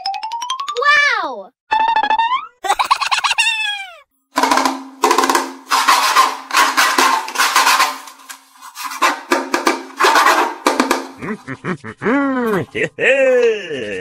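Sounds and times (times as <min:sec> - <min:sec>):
percussive drum and wood-block hits: 0:04.4 - 0:08.1, 0:09.0 - 0:11.3.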